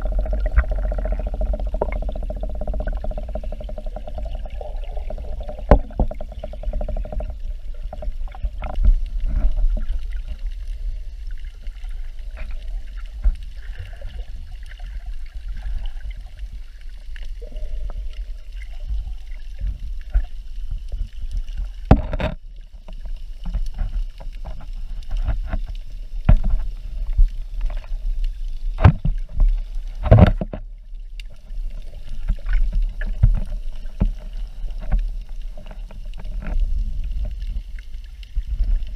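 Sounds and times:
muffled underwater water rumble: 0.0s - 38.9s
sharp clicks and knocks: 5.1s - 8.9s, 21.8s - 22.4s.

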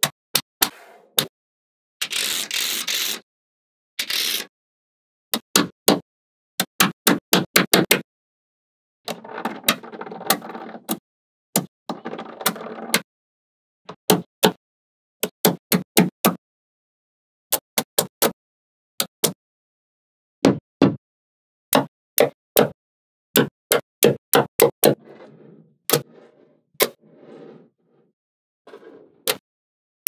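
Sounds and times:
rattling scraping noise: 24.9s - 28.1s, 28.7s - 29.3s.

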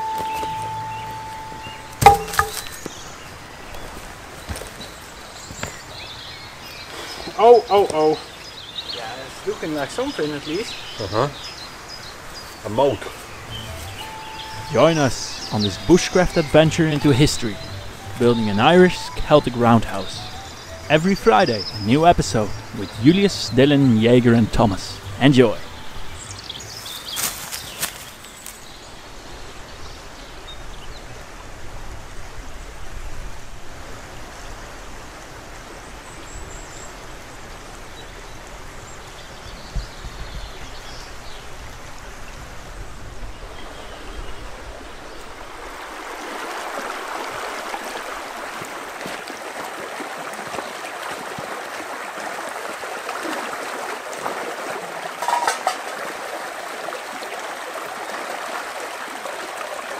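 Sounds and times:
stream running over stones: 0.0s - 59.9s
water splash: 45.6s - 57.3s.

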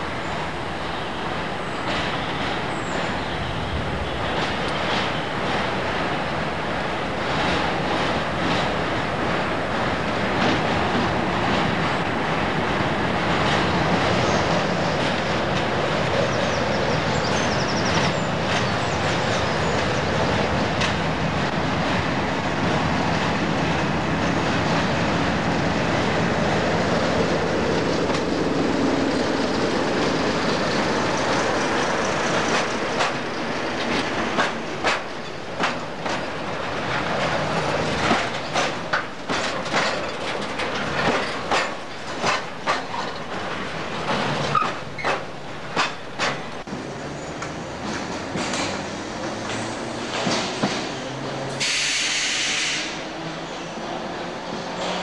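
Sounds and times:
diesel locomotive engine: 0.0s - 55.0s
rail noise: 0.0s - 55.0s
wheels clicking over rail joints: 27.7s - 51.7s.

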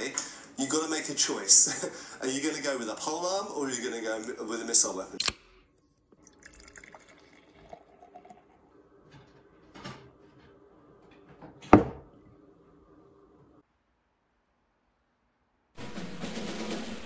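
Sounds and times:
beer pouring and fizzing: 6.1s - 10.8s.

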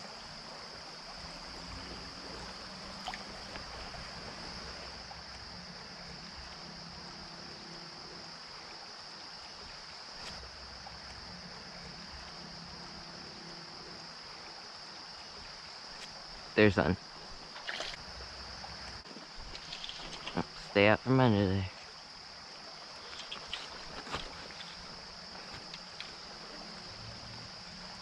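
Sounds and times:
creek running over gravel: 0.0s - 28.0s
high insect chorus: 0.0s - 28.0s.

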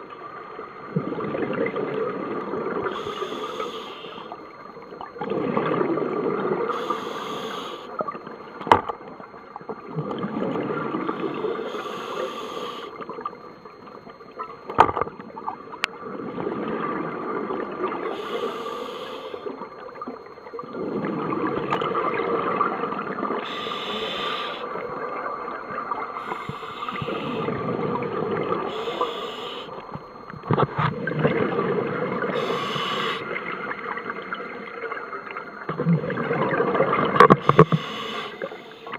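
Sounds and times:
regulator inhale hiss: 2.9s - 4.4s, 6.7s - 8.0s, 11.2s - 13.1s, 18.1s - 19.6s, 23.4s - 24.8s, 26.2s - 27.6s, 28.6s - 29.8s, 32.3s - 33.4s, 37.3s - 38.9s.

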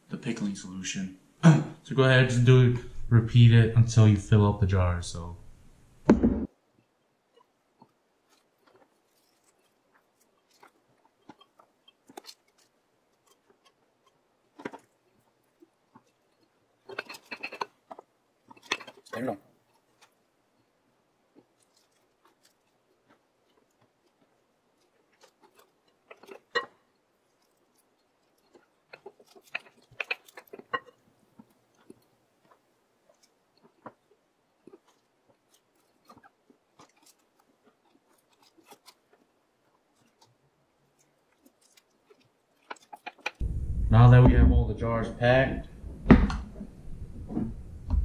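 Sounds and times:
food packed into glass jar: 21.3s - 43.4s.

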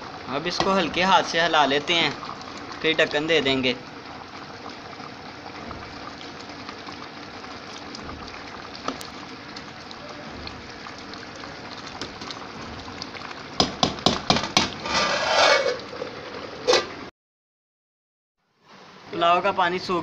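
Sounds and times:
broth bubbling in a pot: 0.0s - 17.1s
metal spoon knocking on pot: 13.6s - 14.8s.

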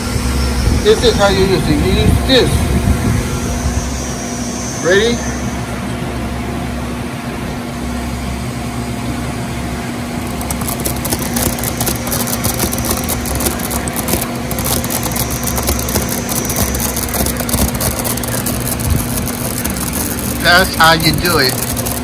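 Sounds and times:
crackling hiss of cutting plastic: 10.2s - 22.0s
metal lathe humming: 10.2s - 22.0s.

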